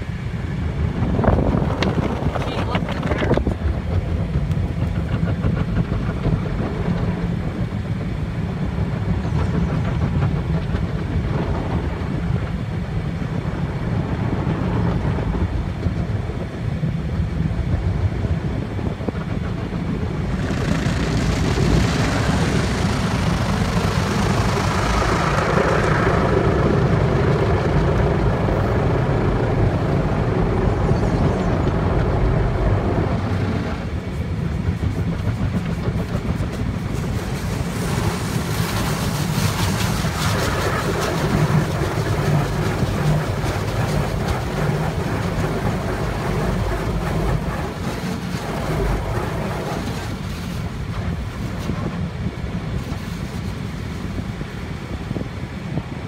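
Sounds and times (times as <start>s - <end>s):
car wash low rumble: 0.0s - 56.0s
water spray and scrubbing: 20.2s - 27.4s, 33.5s - 54.8s.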